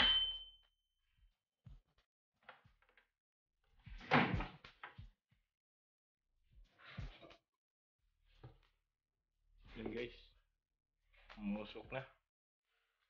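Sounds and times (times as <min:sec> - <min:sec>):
timer bell ding: 0:00.0 - 0:00.5.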